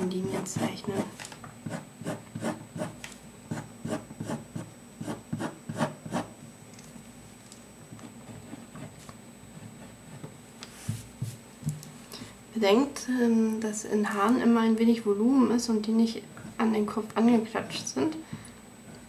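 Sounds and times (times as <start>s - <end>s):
pen scratching on paper: 0.2s - 6.3s.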